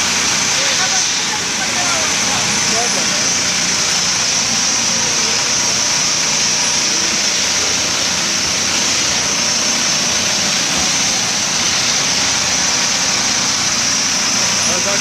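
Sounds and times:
small petrol engines running: 0:00.0 - 0:15.0.

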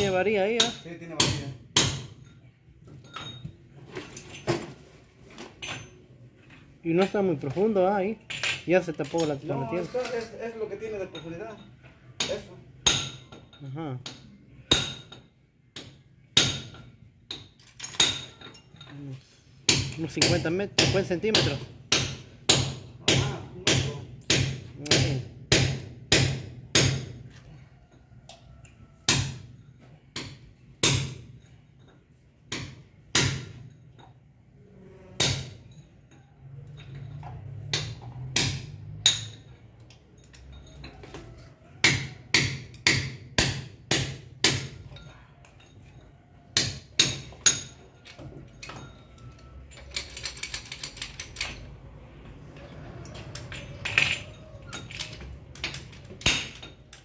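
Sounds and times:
hammer striking concrete: 0:00.0 - 0:02.3, 0:15.8 - 0:17.4, 0:19.7 - 0:27.3, 0:29.1 - 0:29.5, 0:30.2 - 0:31.3, 0:32.5 - 0:33.6, 0:37.6 - 0:39.3, 0:41.8 - 0:44.9, 0:46.6 - 0:47.7.

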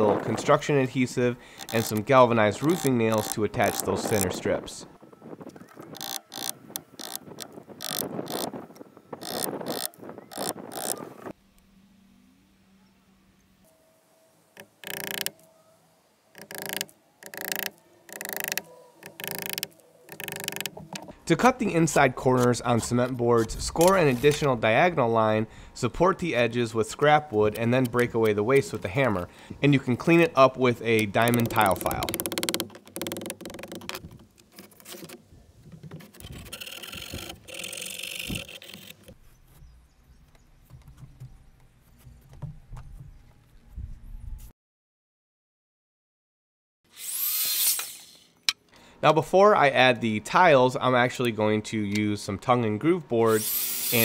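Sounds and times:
hammer driving nails: 0:01.6 - 0:02.0, 0:02.6 - 0:04.2, 0:14.6 - 0:15.4, 0:16.4 - 0:21.1, 0:31.0 - 0:34.2
file rasping along edge: 0:53.4 - 0:54.0.

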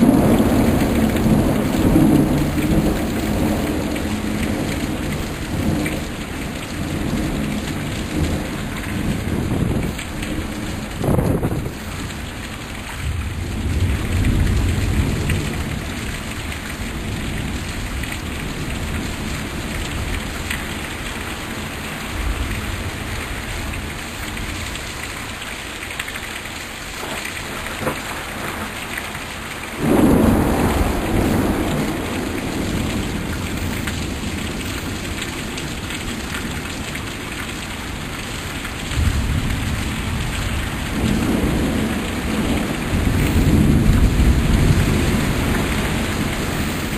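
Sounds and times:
thunder rumbling: 0:00.0 - 0:12.3, 0:27.0 - 0:36.6, 0:38.9 - 0:46.9
heavy rain pouring: 0:00.0 - 0:46.9
loud thunderclap: 0:08.1 - 0:11.8, 0:29.8 - 0:34.6, 0:39.0 - 0:46.9.

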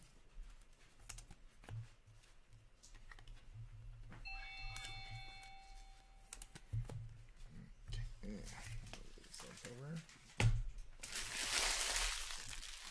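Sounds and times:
faint ringing tone: 0:04.1 - 0:06.4
trading cards and sleeves rustling: 0:11.0 - 0:12.9.

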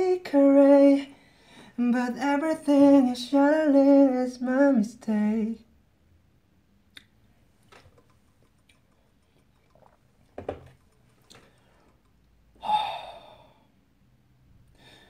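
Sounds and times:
person breathing: 0:01.1 - 0:01.8, 0:11.3 - 0:13.8, 0:14.6 - 0:15.0
person sighing: 0:12.6 - 0:13.7.

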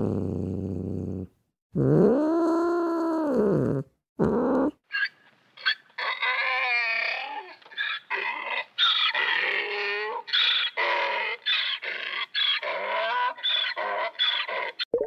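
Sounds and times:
animal whining cries: 0:04.4 - 0:14.9.

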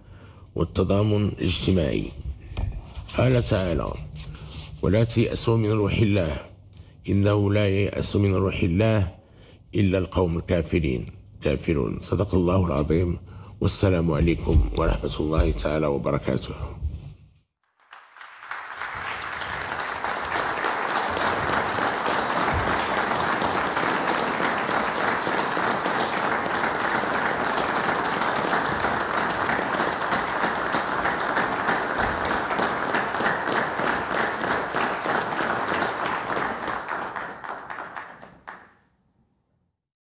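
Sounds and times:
crowd applauding: 0:17.6 - 0:38.8.

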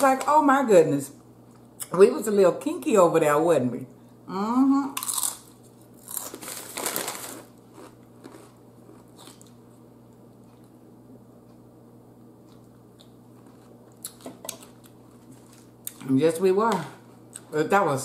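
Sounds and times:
crunching chip chewing: 0:05.0 - 0:09.6.

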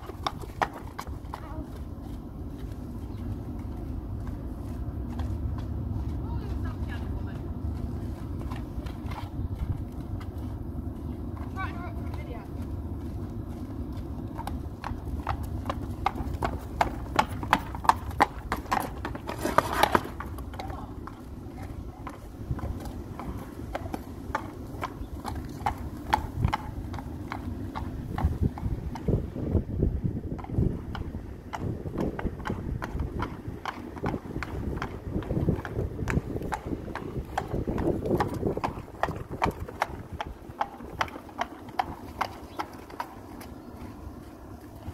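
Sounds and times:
horse hooves on concrete: 0:00.0 - 0:44.9.

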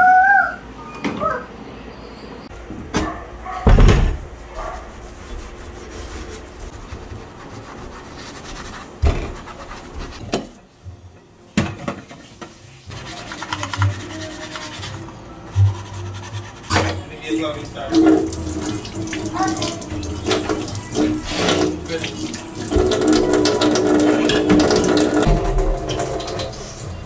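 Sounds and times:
metal scraping and rubbing: 0:12.7 - 0:27.0
metal clanking on steel sink: 0:16.7 - 0:27.0.

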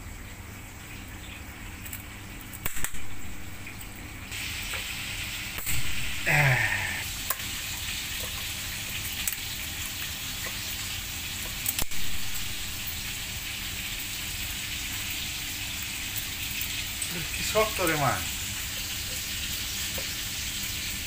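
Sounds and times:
fish sizzling in hot oil: 0:00.0 - 0:21.0.

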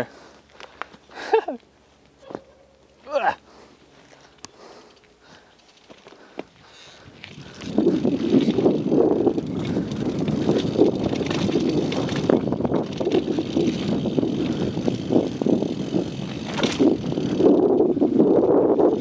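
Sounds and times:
bike rattling and knocking: 0:04.0 - 0:19.0
tyres crunching over dirt and stones: 0:05.0 - 0:15.0.

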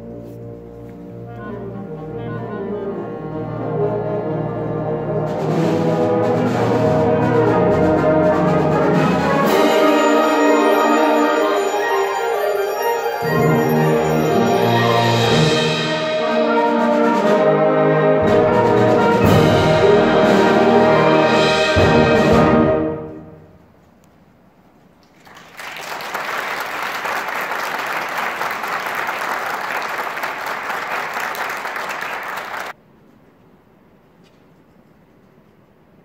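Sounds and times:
wind band playing chords: 0:00.0 - 0:23.6
audience applause: 0:25.1 - 0:32.8.

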